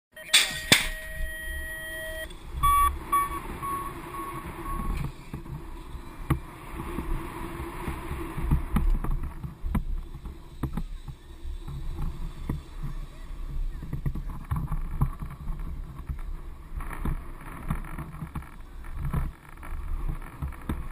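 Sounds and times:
steady electronic beep: 0.1 - 5.2.

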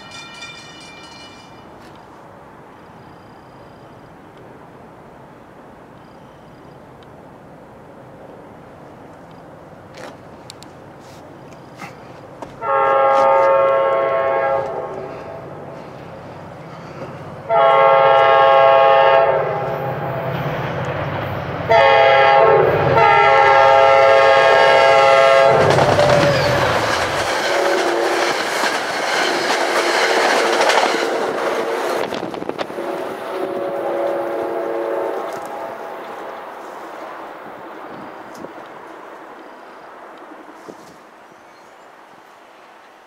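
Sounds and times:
train wheels rushing on rails: 0.0 - 3.6, 9.0 - 41.1
train air horn: 12.6 - 15.6, 17.4 - 20.3, 21.7 - 28.3, 31.6 - 36.8.

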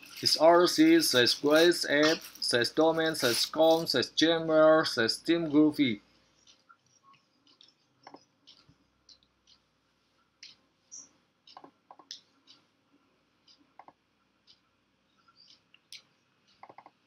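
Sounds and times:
computer mouse clicking: 10.4 - 12.6, 13.5 - 14.6, 15.3 - 17.0.

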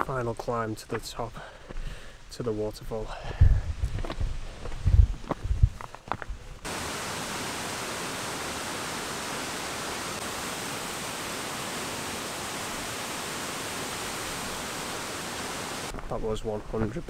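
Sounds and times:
waterfall rushing: 6.7 - 15.9.

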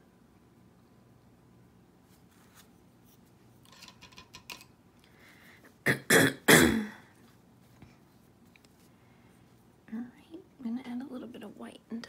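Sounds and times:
woman coughing: 5.9 - 7.0.

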